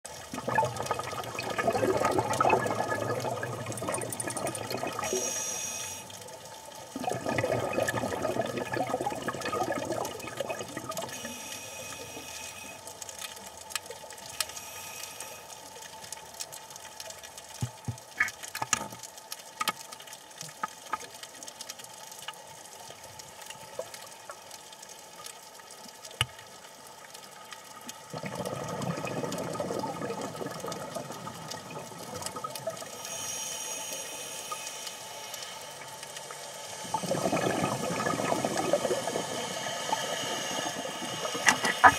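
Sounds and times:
regulator exhalation bubbling: 0:00.4 - 0:05.7, 0:07.0 - 0:12.0, 0:36.8 - 0:41.9
regulator inhalation hiss: 0:05.0 - 0:06.2, 0:11.1 - 0:12.8, 0:14.4 - 0:15.6, 0:32.9 - 0:41.9
sharp clicks in water: 0:11.9 - 0:39.3, 0:39.9 - 0:41.9.

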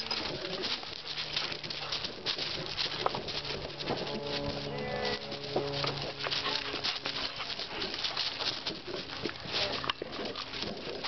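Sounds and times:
dog paws scrambling on loose ground: 0:00.0 - 0:11.0.

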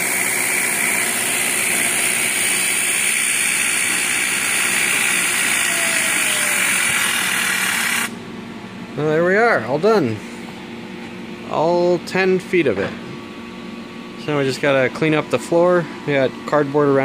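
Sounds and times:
milling machine cutting metal: 0:00.0 - 0:08.1
compressed air hissing: 0:02.4 - 0:08.2.

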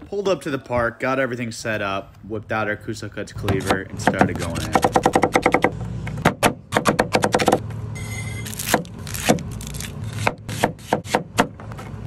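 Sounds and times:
cleaver chopping on wooden board: 0:10.2 - 0:11.6.

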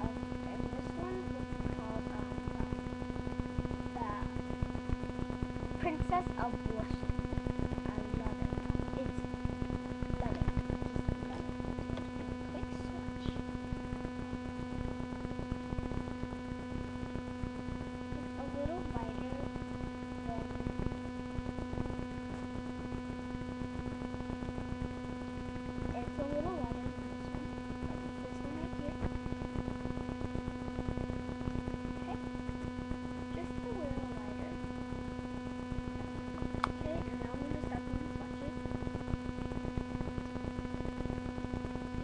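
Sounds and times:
electrical hum: 0:00.0 - 0:42.0
faint voice: 0:12.5 - 0:13.5.

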